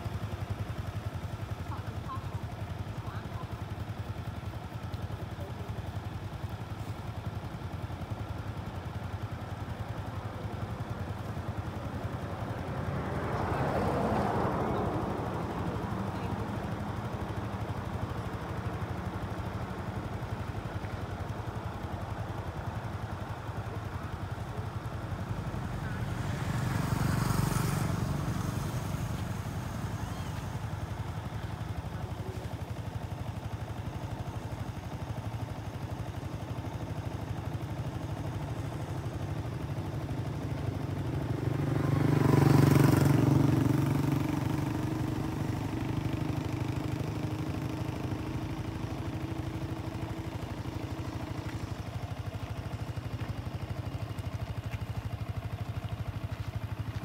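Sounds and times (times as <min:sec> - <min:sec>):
traffic engine rumble: 0:00.0 - 0:57.0
motor vehicle passing: 0:12.0 - 0:21.6, 0:23.2 - 0:32.9, 0:40.0 - 0:53.3.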